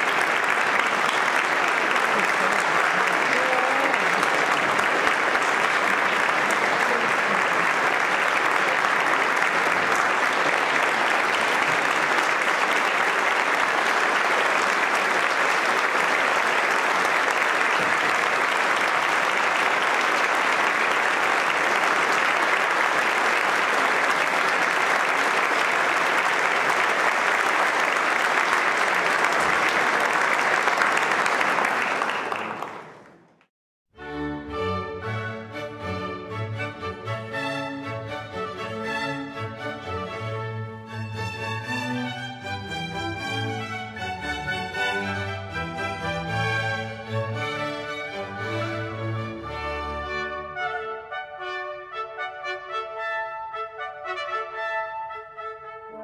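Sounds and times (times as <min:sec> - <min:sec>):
audience applauding: 0:00.0 - 0:33.5, 0:40.9 - 0:50.0.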